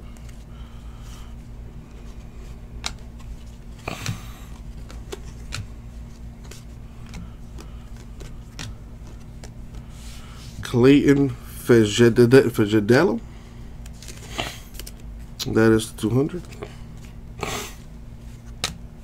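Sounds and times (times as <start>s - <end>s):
steady low hum: 0.0s - 19.0s
cards flipped through by hand: 0.1s - 1.3s, 1.9s - 10.6s, 13.8s - 15.1s, 16.5s - 18.8s.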